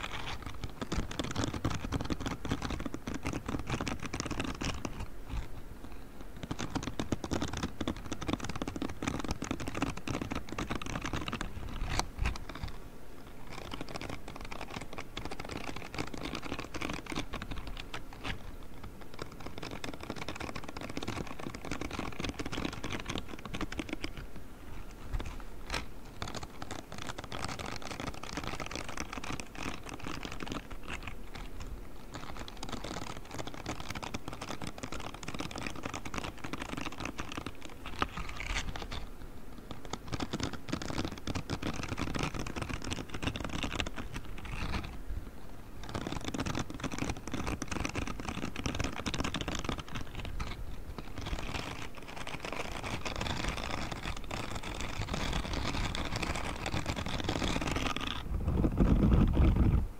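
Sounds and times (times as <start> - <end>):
gloves scratching microphone grille: 0.0 - 59.9.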